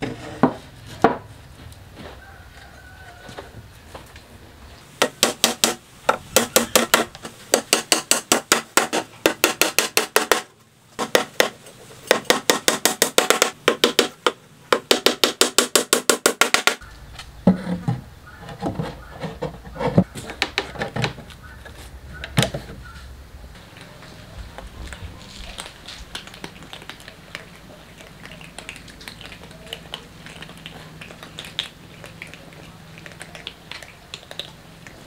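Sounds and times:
hammer striking nails: 5.0s - 16.8s.

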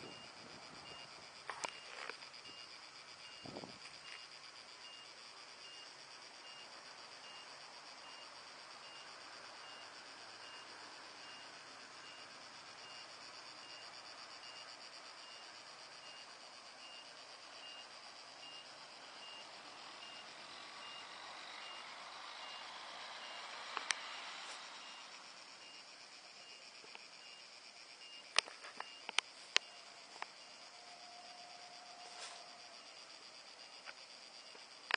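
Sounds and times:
faint electronic beeps: 0.0s - 6.6s, 16.0s - 26.6s, 27.2s - 30.9s
cicadas chorus: 0.0s - 34.9s.

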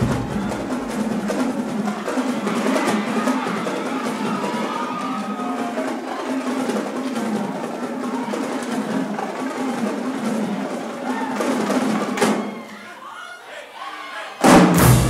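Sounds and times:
bass drums: 0.0s - 1.4s, 14.4s - 15.0s
snare drums rolling: 0.0s - 12.7s, 14.4s - 15.0s.

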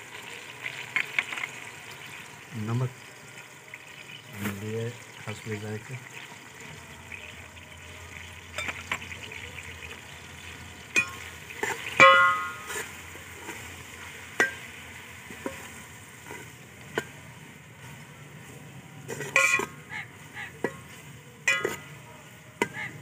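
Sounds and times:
food sizzling in oil: 0.0s - 23.0s
ringing clang of metal pot: 8.5s - 9.0s, 10.9s - 12.8s, 19.2s - 19.8s, 21.4s - 22.0s
metal spatula scraping pot: 10.9s - 14.7s, 15.3s - 17.1s, 19.1s - 19.8s, 20.6s - 22.0s.

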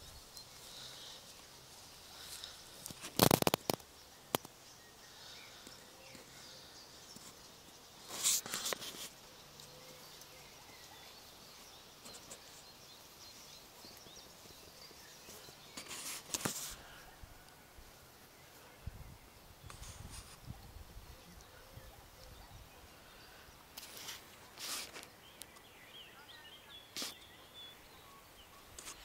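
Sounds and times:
faint bird chirps: 0.0s - 29.0s
crackling clicks: 2.3s - 4.6s.

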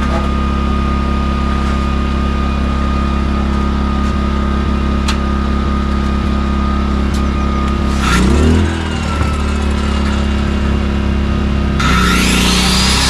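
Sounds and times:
portable generator running: 0.0s - 13.0s.

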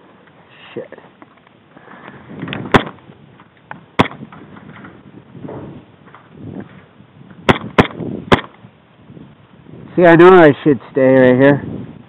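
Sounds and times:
airsoft pistol shots: 2.7s - 3.0s, 4.0s - 4.2s, 7.5s - 8.6s.

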